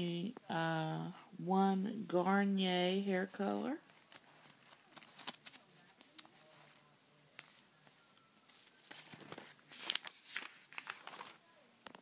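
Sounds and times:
glossy paper rustling and crackling: 0:03.4 - 0:11.4.

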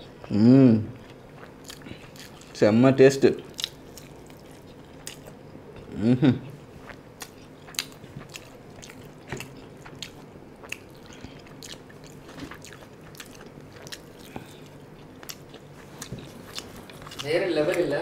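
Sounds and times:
chewing and biting food: 0:00.0 - 0:05.6, 0:06.4 - 0:18.0
person humming: 0:00.2 - 0:01.0, 0:05.8 - 0:06.6.

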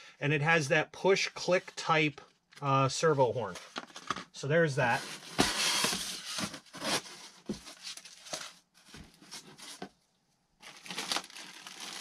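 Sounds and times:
cardboard rustling and tearing: 0:04.9 - 0:09.8, 0:10.6 - 0:12.0
plastic wrap rustling: 0:10.6 - 0:12.0.

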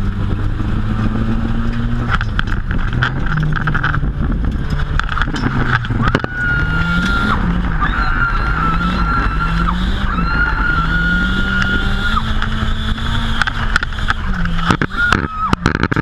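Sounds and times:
car engine revving: 0:00.0 - 0:16.0
high turbo whine: 0:00.0 - 0:16.0.

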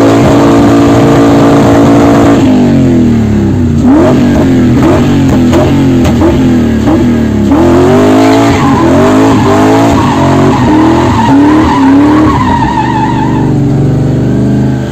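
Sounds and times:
car engine revving: 0:00.0 - 0:14.9
tyres squealing: 0:08.3 - 0:13.5.

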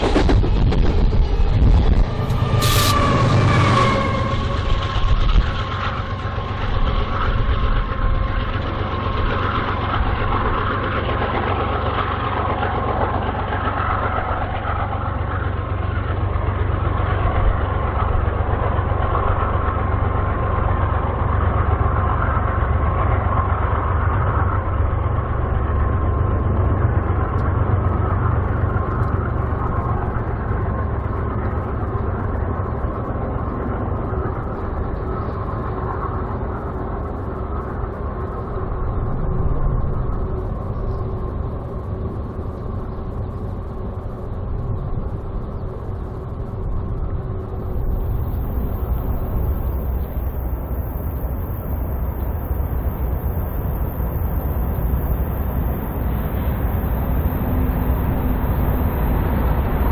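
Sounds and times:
freight train rumbling on rails: 0:00.0 - 0:59.9
thin high tone: 0:02.1 - 0:04.6, 0:47.5 - 0:59.9.

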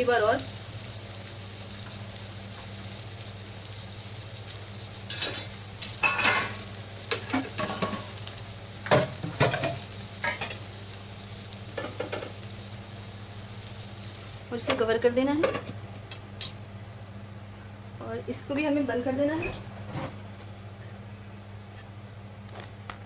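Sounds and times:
sharp crackles and pops: 0:00.0 - 0:14.8
paneer sizzling in a pan: 0:00.0 - 0:16.6.

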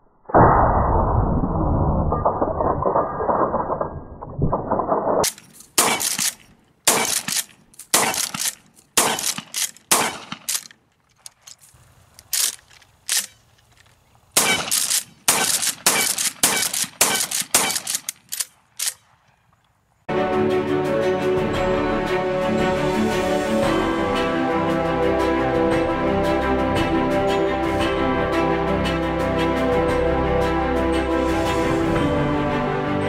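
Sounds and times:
shotgun shots: 0:05.2 - 0:10.7, 0:14.4 - 0:19.2
shotgun pump slide: 0:05.2 - 0:19.0.

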